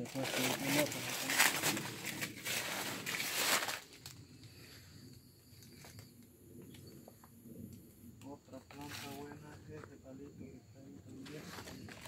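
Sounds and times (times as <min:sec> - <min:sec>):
dry leaves rustling and crackling: 0:00.0 - 0:04.2
high-pitched insect calls: 0:00.4 - 0:09.4.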